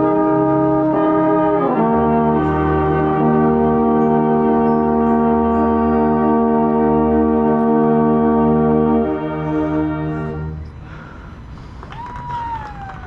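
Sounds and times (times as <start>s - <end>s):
marching band brass chord: 0.0s - 10.7s
background noise: 0.0s - 13.0s.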